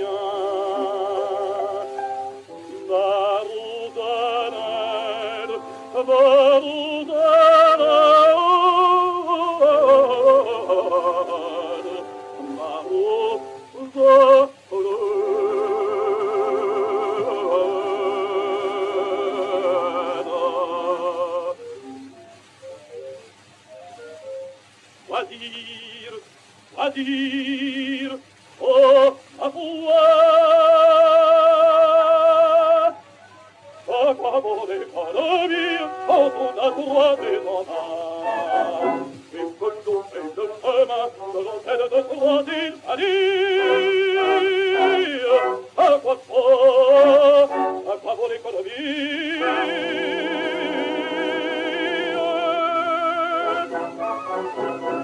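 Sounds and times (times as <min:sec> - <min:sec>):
baritone singing opera: 0:00.0 - 0:22.0, 0:25.0 - 0:33.1, 0:33.8 - 0:55.0
orchestra: 0:00.0 - 0:23.2, 0:29.9 - 0:55.0
orchestra playing: 0:35.5 - 0:37.6, 0:49.4 - 0:55.0.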